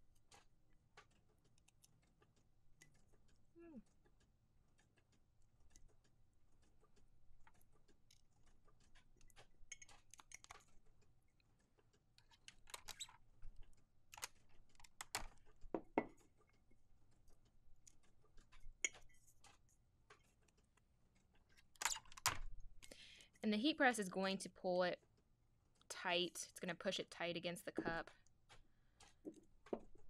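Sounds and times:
ceramic mug knocking on desk: 15.7s - 16.2s.

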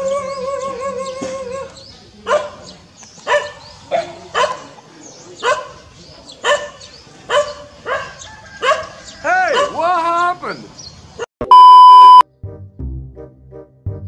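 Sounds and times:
dog barking: 2.2s - 2.7s, 3.3s - 4.8s, 5.4s - 5.8s, 6.4s - 9.8s.

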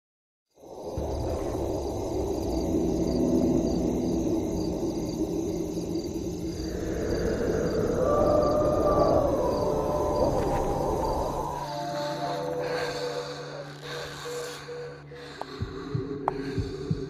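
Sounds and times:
crickets chirping: 0.5s - 17.0s
low rumble: 0.6s - 11.8s
long rising howl: 0.6s - 14.1s.

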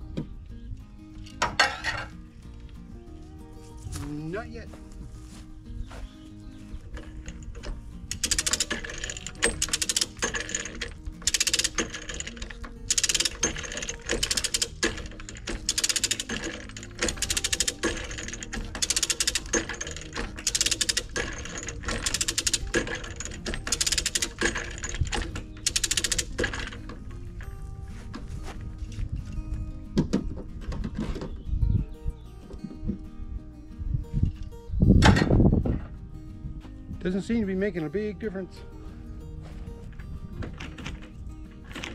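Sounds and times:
ratchet pawl clicking: 7.0s - 27.0s.

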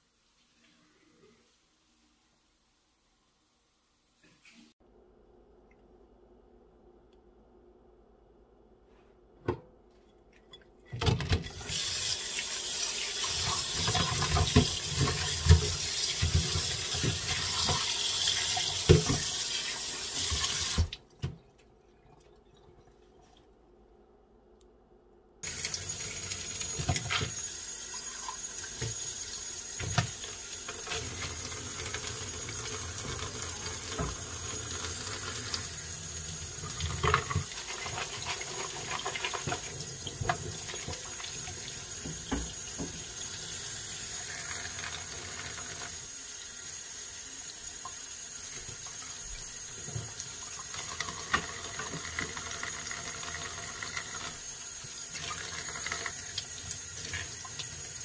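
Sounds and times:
tap water splashing into sink: 13.2s - 21.6s, 25.4s - 27.5s, 28.2s - 29.2s, 29.8s - 35.7s, 36.5s - 43.3s, 49.7s - 57.9s.

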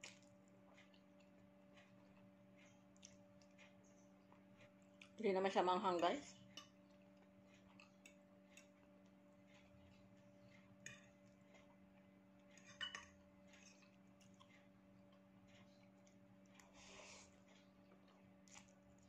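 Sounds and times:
steady low hum: 0.0s - 19.0s
fork clinking on plate: 12.6s - 13.2s.

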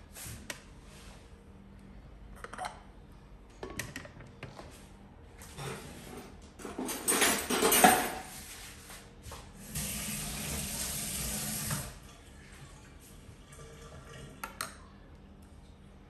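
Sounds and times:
clatter in sink: 6.6s - 8.3s.

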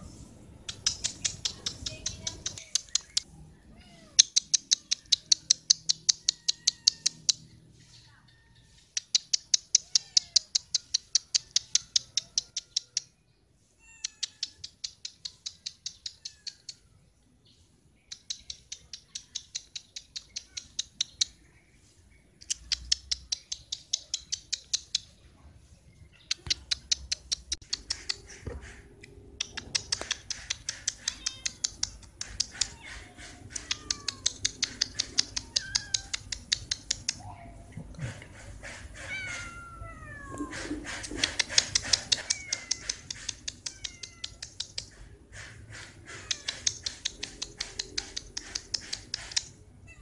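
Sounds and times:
animal clicking calls: 0.6s - 3.3s, 4.0s - 7.6s, 8.8s - 13.2s, 14.0s - 16.9s, 18.1s - 21.4s, 22.4s - 25.2s, 26.2s - 49.7s.

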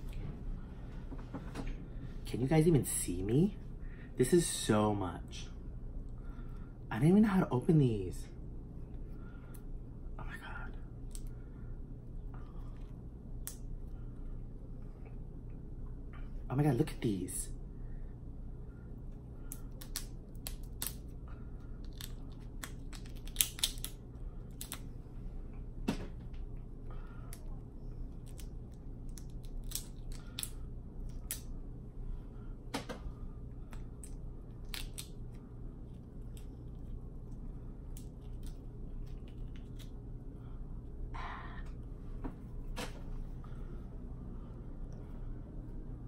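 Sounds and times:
steady low hum: 0.0s - 46.0s
crab shells cracking: 19.5s - 21.1s, 21.8s - 24.8s, 28.2s - 31.5s, 34.0s - 35.2s.

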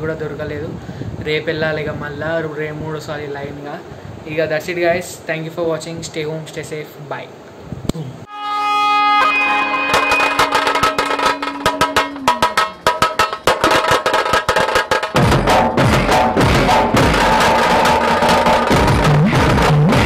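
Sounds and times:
held note sliding down: 8.3s - 13.3s
drum beat with bass: 9.4s - 20.0s.

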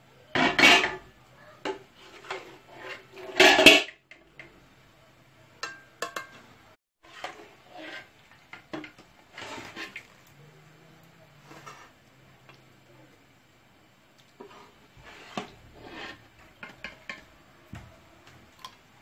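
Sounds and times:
metal ladle clinking on pot: 5.6s - 6.4s.

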